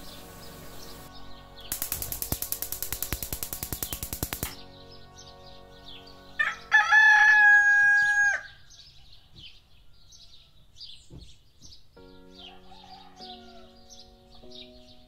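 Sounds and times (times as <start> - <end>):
small birds chirping: 0.0 - 6.7, 8.3 - 15.0
rooster crowing: 6.4 - 9.3, 12.4 - 13.8.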